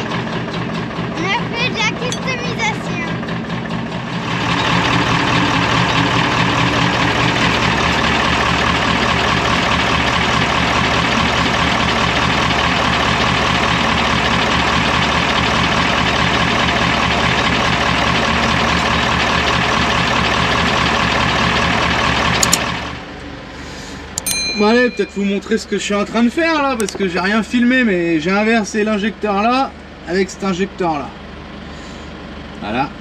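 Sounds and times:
diesel engine idling: 0.0 - 33.0.

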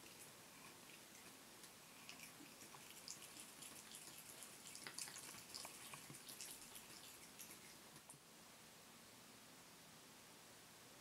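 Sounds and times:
cat lapping water: 0.0 - 8.2.

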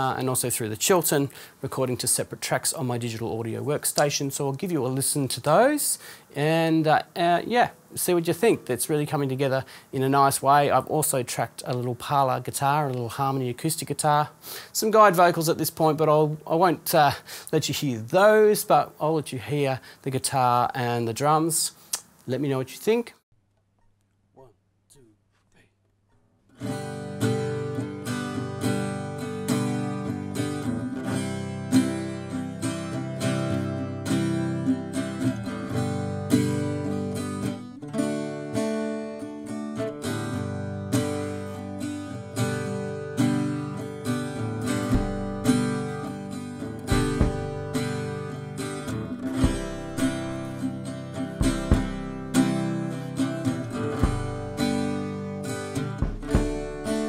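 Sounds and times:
acoustic guitar strummed: 26.6 - 57.0
bass drum thumps: 44.9 - 45.5, 46.9 - 47.8, 49.4 - 50.4, 51.4 - 52.4, 53.9 - 54.6, 56.0 - 57.0.

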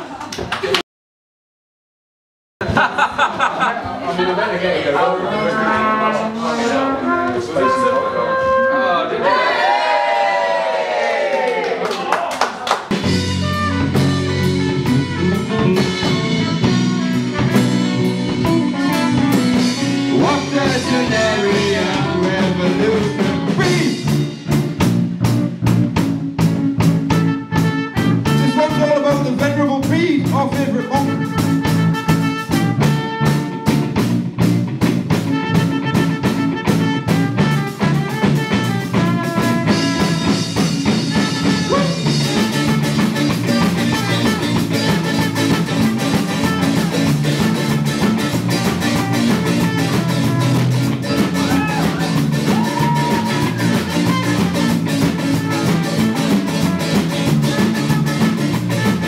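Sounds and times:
live rock band playing: 5.2 - 8.8, 12.8 - 59.0
drum kit steady beat: 12.8 - 59.0
person singing: 19.7 - 24.0.

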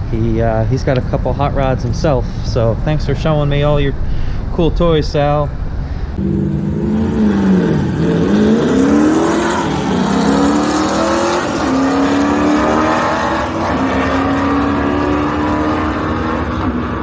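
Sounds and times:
race car engine accelerating: 6.2 - 17.0.

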